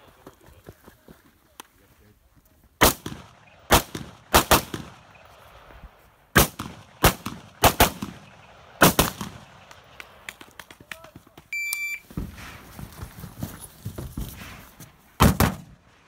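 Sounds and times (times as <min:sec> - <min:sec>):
rifle shots with echo: 0:02.8 - 0:05.7, 0:06.3 - 0:10.3.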